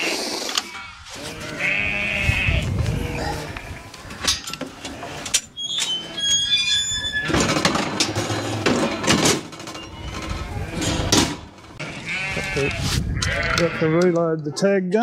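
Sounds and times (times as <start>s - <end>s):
lambs bleating: 0.0s - 3.9s, 11.8s - 14.0s.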